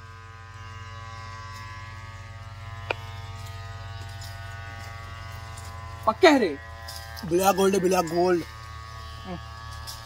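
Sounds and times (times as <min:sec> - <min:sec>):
small motor humming: 0:00.0 - 0:10.0.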